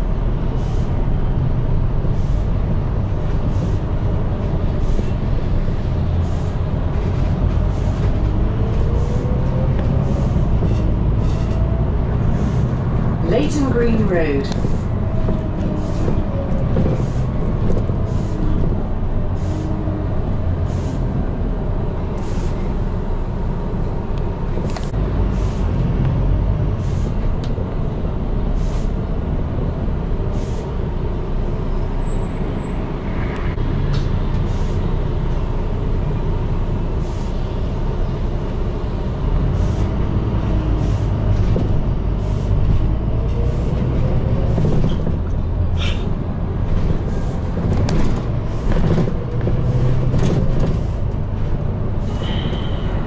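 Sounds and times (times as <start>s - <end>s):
bus engine and road rumble: 0.0s - 53.0s
bodywork rattles and knocks: 14.6s - 18.0s, 42.7s - 51.8s.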